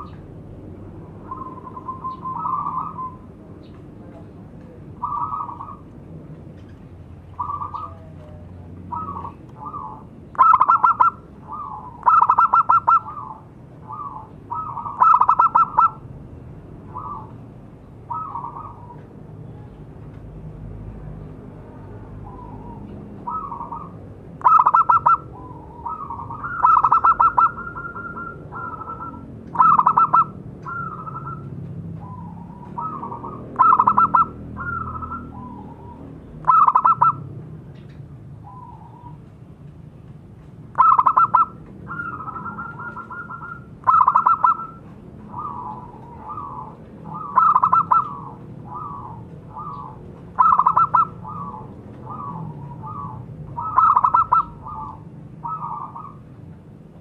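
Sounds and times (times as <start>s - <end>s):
dove cooing: 1.1s - 4.2s, 5.0s - 5.9s, 7.3s - 16.1s, 16.8s - 17.4s, 18.0s - 19.1s, 22.2s - 37.3s, 40.7s - 56.3s.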